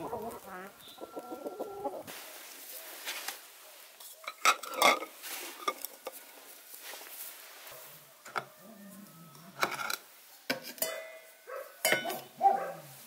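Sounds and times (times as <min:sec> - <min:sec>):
straw rustling: 0:00.0 - 0:09.3.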